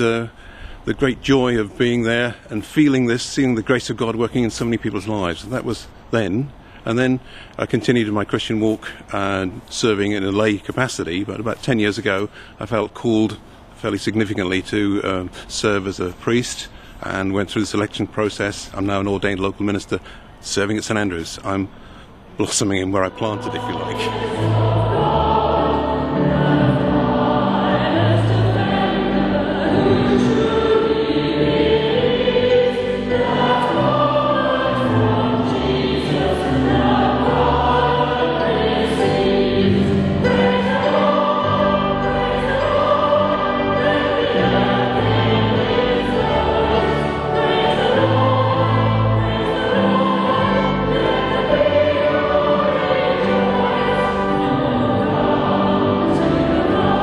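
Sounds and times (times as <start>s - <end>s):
choir singing chords: 22.4s - 57.0s.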